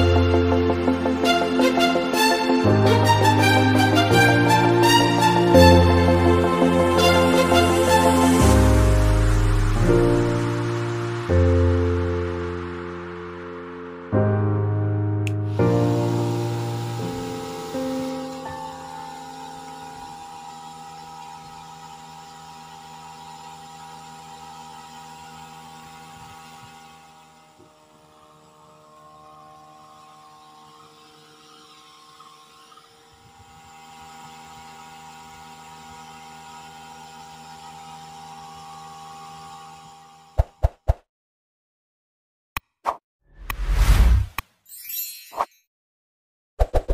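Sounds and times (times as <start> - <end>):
small fan motor whining: 15.5 - 40.4.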